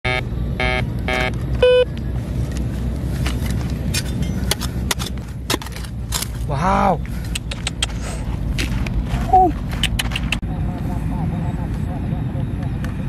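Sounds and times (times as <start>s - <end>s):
metal detector beeping: 0.1s - 1.9s
steady low rumble: 0.1s - 13.0s
digging tool scraping soil and stones: 2.2s - 6.6s, 8.0s - 10.3s.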